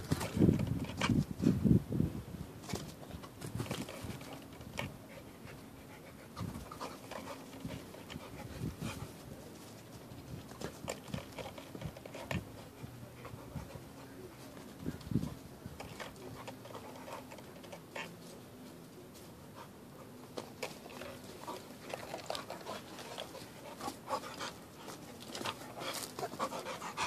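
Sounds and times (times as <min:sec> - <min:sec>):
dog panting: 0:04.1 - 0:09.3, 0:11.0 - 0:18.3, 0:19.5 - 0:27.0.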